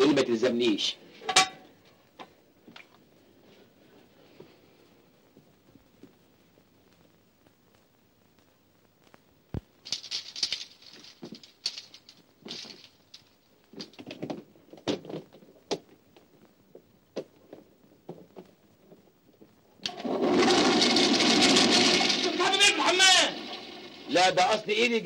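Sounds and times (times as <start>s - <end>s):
rustling with clicks and knocks: 6.9s - 22.3s
loud dense noise: 19.9s - 25.0s.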